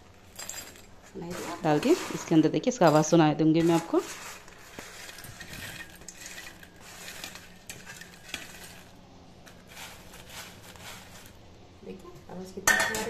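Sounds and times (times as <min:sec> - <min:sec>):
corn kernels rattling into glass bowl: 0:01.4 - 0:08.9.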